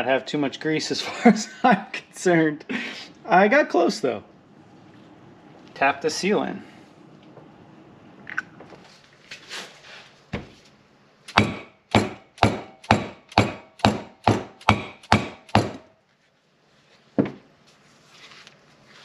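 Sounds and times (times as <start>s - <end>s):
hammer striking seal driver: 11.3s - 15.9s.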